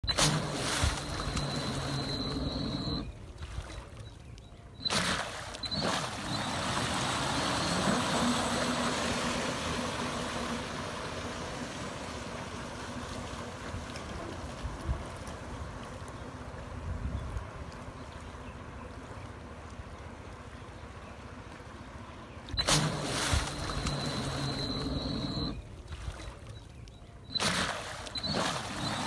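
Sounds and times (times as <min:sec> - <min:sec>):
water jets rushing and spraying: 0:00.0 - 0:03.2, 0:04.8 - 0:16.8, 0:22.5 - 0:25.7, 0:27.3 - 0:29.0
faint motor hum: 0:00.0 - 0:29.0.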